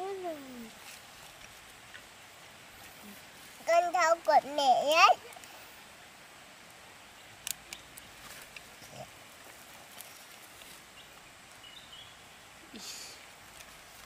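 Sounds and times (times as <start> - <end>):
faint voice: 0.0 - 0.8
faint rustling: 0.4 - 5.8, 8.0 - 11.8.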